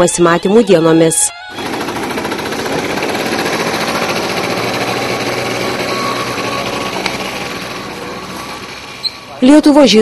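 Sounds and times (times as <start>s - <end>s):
scooter engine buzzing: 1.5s - 10.0s.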